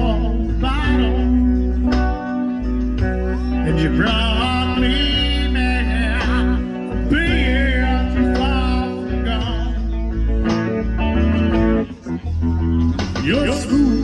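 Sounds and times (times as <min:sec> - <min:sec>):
man singing with vibrato: 0:00.0 - 0:01.8, 0:03.4 - 0:10.2, 0:13.2 - 0:14.0
electric and acoustic guitars: 0:00.0 - 0:14.0
low bass notes: 0:00.0 - 0:14.0.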